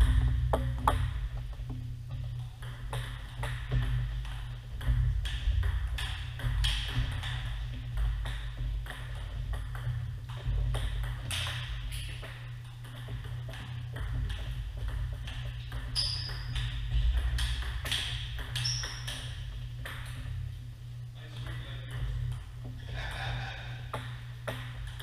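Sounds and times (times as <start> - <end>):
low hum: 0.0 - 25.0
table tennis ball clicks: 15.2 - 20.1.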